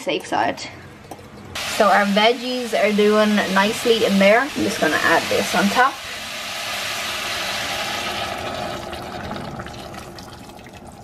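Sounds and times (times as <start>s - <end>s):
stock pouring and splashing: 4.4s - 11.0s.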